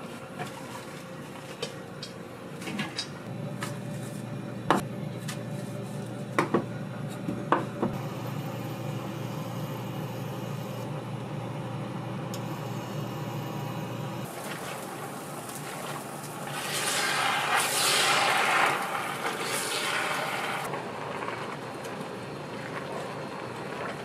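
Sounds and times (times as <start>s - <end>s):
steady low hum: 0.0s - 14.8s.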